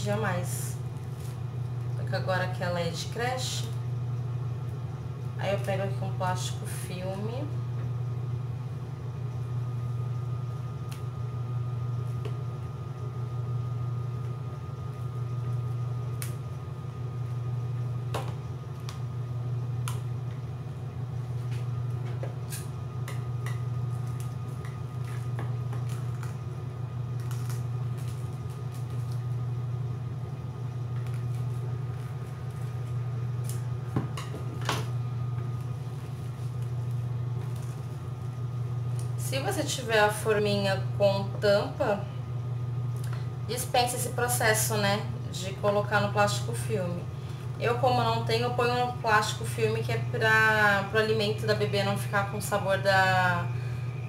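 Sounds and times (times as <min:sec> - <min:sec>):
cling film crinkling: 0:23.9 - 0:29.5.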